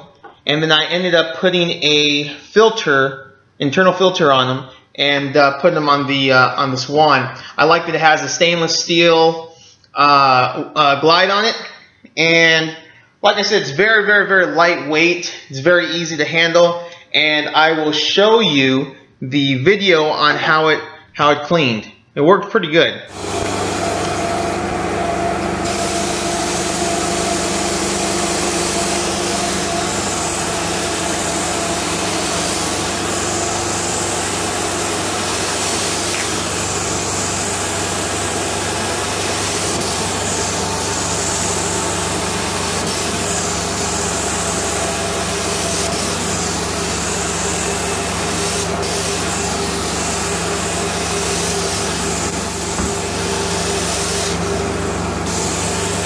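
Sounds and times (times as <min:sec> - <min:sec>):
extractor engine and vacuum running: 0:23.1 - 0:56.0
hiss of spray and suction: 0:25.6 - 0:54.4, 0:55.2 - 0:56.0.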